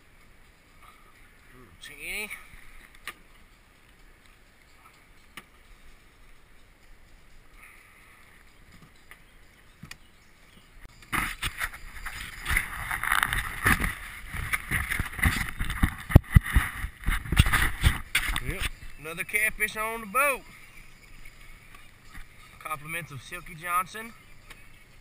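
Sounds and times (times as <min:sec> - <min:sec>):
rustling scraping and knocking: 0:11.1 - 0:18.8.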